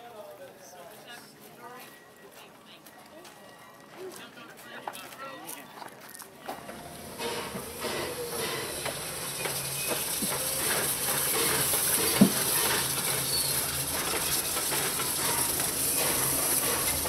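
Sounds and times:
steam locomotive hissing: 6.5s - 17.0s.

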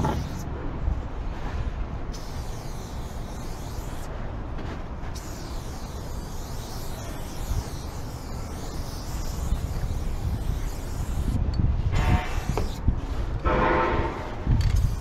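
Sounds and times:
spray paint can hissing: 0.0s - 0.5s, 2.1s - 4.1s, 5.1s - 13.4s, 14.3s - 15.0s
wind rumble on microphone: 9.1s - 15.0s.

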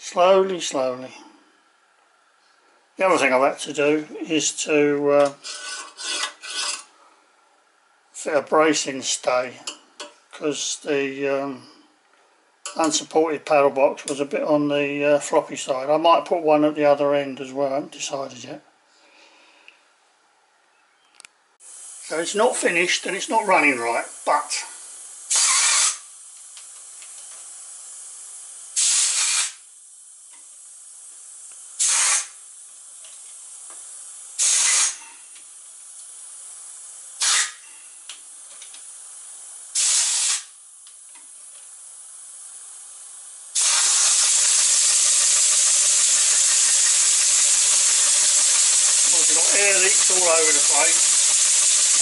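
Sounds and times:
model steam engine hissing: 21.6s - 26.3s, 26.9s - 29.7s, 31.1s - 32.5s, 34.1s - 35.0s, 36.5s - 37.6s, 39.3s - 40.6s, 43.4s - 52.0s.

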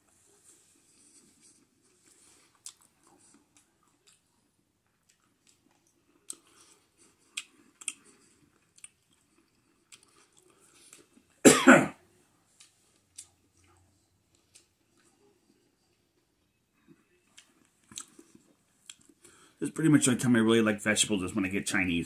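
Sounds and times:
man chewing food: 0.0s - 11.4s, 12.3s - 19.6s
man coughing: 11.4s - 12.0s.

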